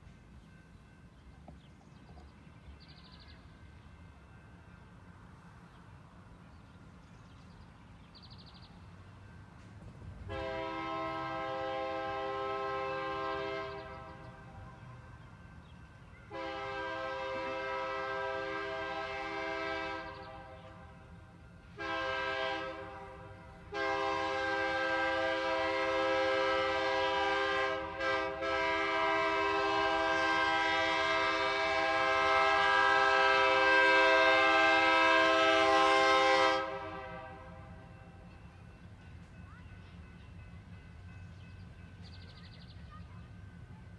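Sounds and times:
locomotive air horn blasts: 0:10.2 - 0:14.4, 0:16.3 - 0:20.9, 0:21.7 - 0:37.9.

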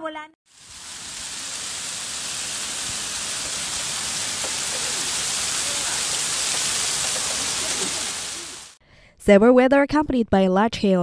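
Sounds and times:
hail and rain pelting down: 0:00.5 - 0:08.8.

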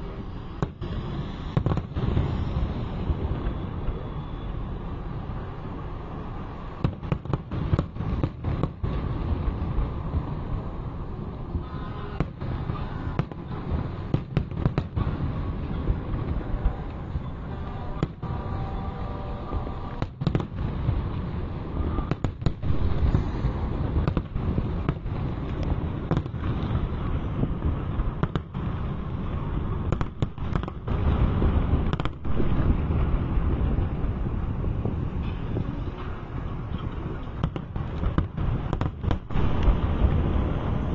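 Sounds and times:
firework bangs: 0:00.0 - 0:40.9
low rumble: 0:15.0 - 0:40.9.

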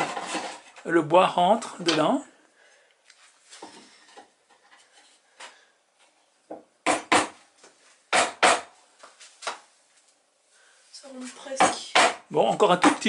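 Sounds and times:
wood scraping: 0:00.0 - 0:01.0.

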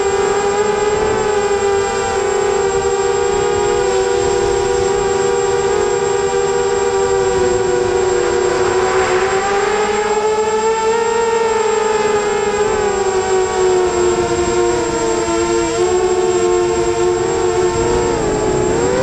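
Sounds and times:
drone propellers whining: 0:00.0 - 0:19.0
rush of wind: 0:00.0 - 0:19.0.

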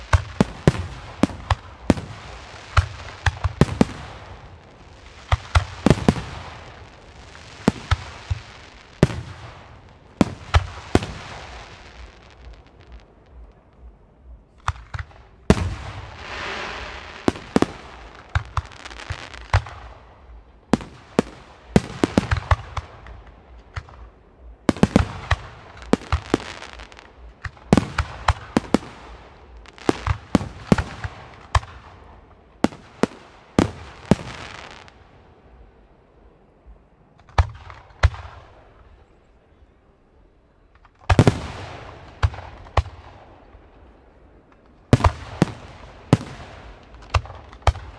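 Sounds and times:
long firework hiss: 0:00.0 - 0:13.8, 0:14.7 - 0:36.0.

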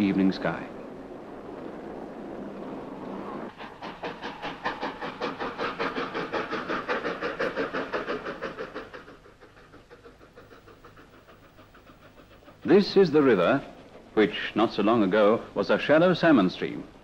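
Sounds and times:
steam train rhythmic beat: 0:03.5 - 0:15.6.

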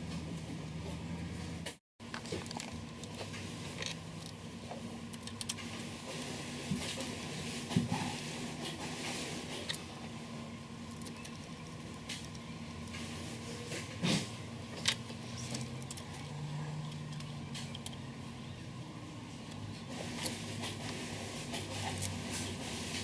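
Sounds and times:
metal parts clinking: 0:05.1 - 0:05.7, 0:10.8 - 0:12.4, 0:14.7 - 0:18.0, 0:21.5 - 0:22.5.

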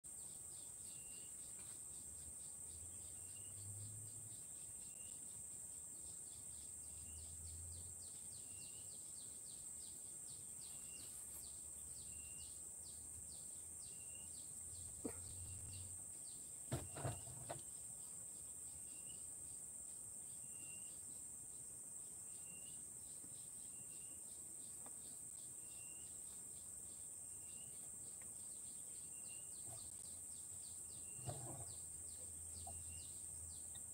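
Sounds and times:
high-pitched insect chorus: 0:00.1 - 0:33.9
knocks: 0:16.7 - 0:17.6.

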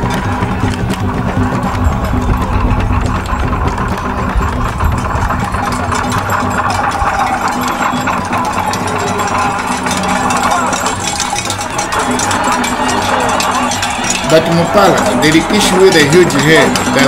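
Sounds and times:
drumming and rattling: 0:00.0 - 0:17.0.

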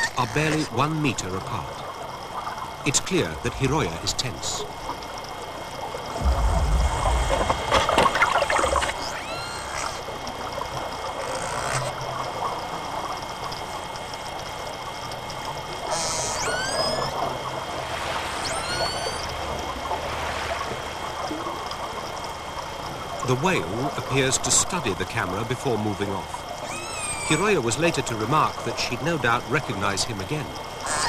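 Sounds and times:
low rumble with crackling: 0:00.2 - 0:26.7
killer whale calls underwater: 0:06.2 - 0:12.0, 0:15.8 - 0:21.6, 0:26.6 - 0:27.6, 0:30.8 - 0:31.0.

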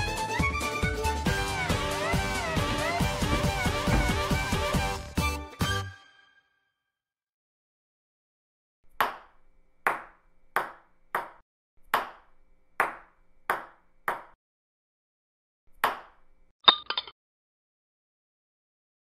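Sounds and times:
ping-pong ball hitting hard surfaces: 0:09.0 - 0:14.4, 0:15.8 - 0:17.1.

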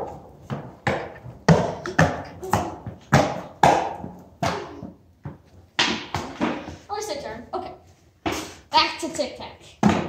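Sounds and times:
skateboard wheels clacking on concrete: 0:00.0 - 0:06.8.

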